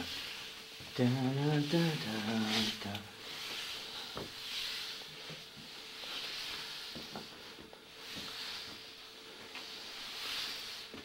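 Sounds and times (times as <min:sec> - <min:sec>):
slow breathing: 0:02.5 - 0:11.0.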